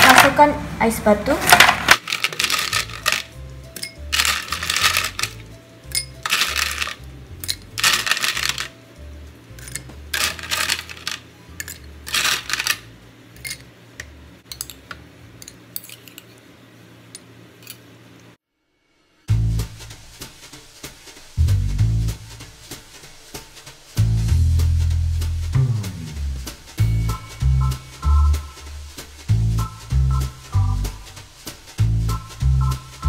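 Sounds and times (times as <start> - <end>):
background music: 0.0 - 13.6, 19.3 - 33.0
ice cubes clinking in glasses: 1.5 - 8.7, 9.6 - 12.8.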